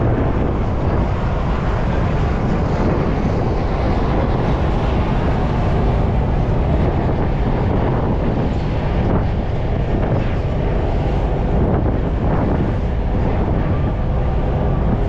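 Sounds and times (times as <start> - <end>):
ferry engine rumble: 0.0 - 15.0
wind buffeting microphone: 0.0 - 15.0.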